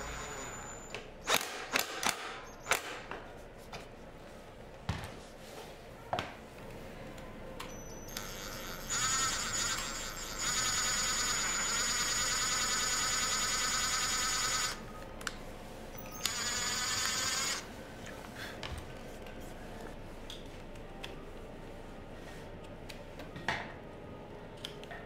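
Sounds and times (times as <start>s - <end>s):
cordless drill whining: 16.2s - 17.6s.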